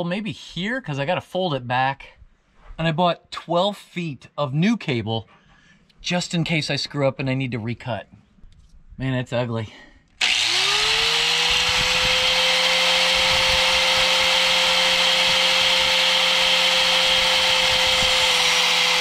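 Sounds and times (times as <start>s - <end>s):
angle grinder whining: 10.2s - 19.0s
grinder cutting steel cable: 10.2s - 19.0s.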